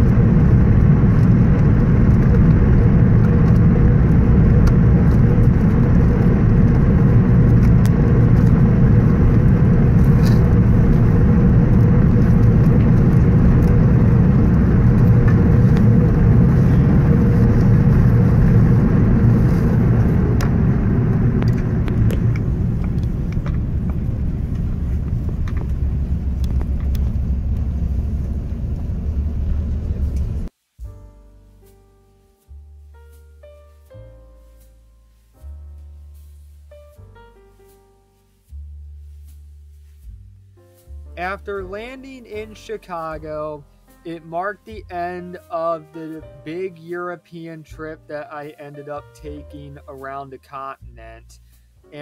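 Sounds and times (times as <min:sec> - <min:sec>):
aircraft cabin engine rumble: 0:00.0 - 0:30.5.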